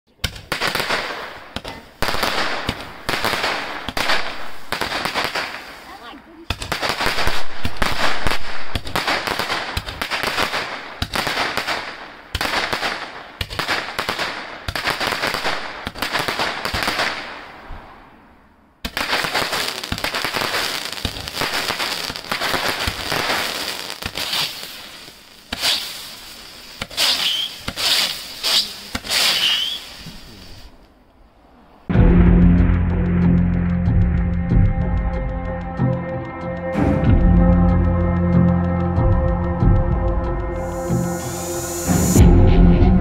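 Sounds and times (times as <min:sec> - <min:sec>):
firework crackling: 0:00.1 - 0:17.7, 0:18.8 - 0:31.0, 0:40.5 - 0:42.3
firework shots: 0:00.2 - 0:18.2, 0:18.8 - 0:30.8.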